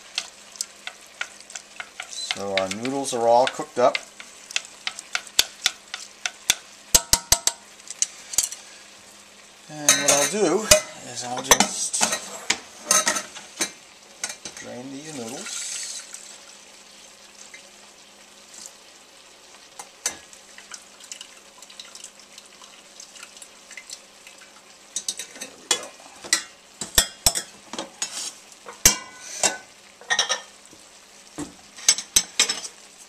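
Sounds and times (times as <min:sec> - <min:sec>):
utensils clattering on pan: 0:00.0 - 0:08.7, 0:09.8 - 0:14.7, 0:20.0 - 0:20.2, 0:24.9 - 0:30.5, 0:31.8 - 0:32.8.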